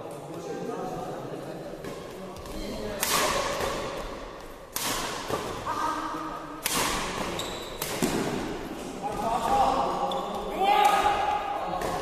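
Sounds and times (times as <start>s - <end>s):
badminton racket hits: 1.8s - 9.7s.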